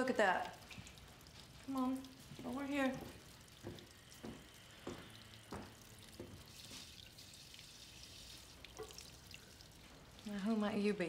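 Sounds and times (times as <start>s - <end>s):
soft drips: 0.0s - 11.0s
tap running into sink: 2.4s - 6.9s.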